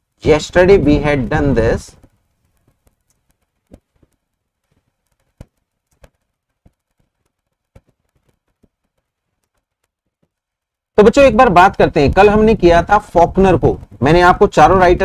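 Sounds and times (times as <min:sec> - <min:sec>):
computer mouse clicks: 0:01.2 - 0:10.8.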